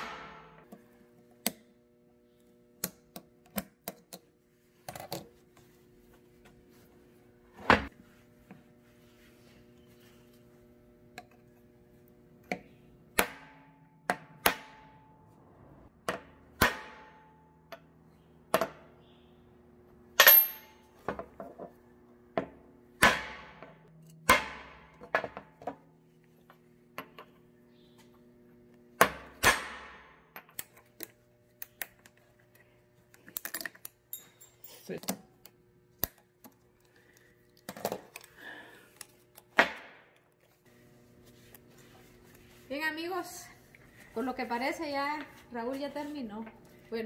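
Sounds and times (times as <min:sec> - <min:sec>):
hammer striking steel: 0:00.0 - 0:00.6, 0:13.2 - 0:15.2, 0:16.2 - 0:17.4, 0:23.0 - 0:25.1.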